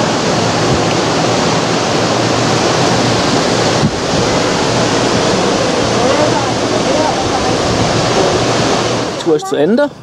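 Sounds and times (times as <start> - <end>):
wind rushing on microphone: 0.0 - 10.0
gondola knock: 2.7 - 9.1.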